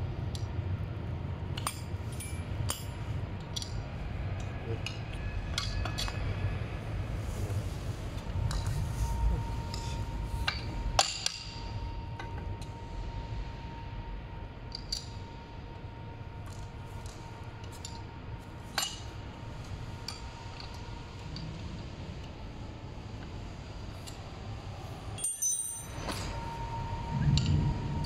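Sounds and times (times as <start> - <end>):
metal tools clinking: 25.2 - 26.2.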